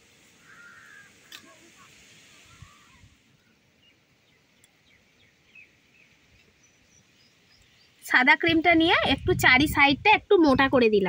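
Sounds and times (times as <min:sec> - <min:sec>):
faint bird chirps: 0:00.4 - 0:08.1.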